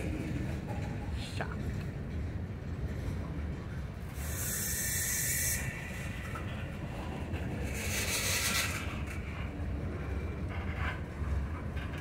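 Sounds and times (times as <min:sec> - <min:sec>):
train cars rumbling on rails: 0:00.0 - 0:12.0
loud hiss of air: 0:04.2 - 0:06.0.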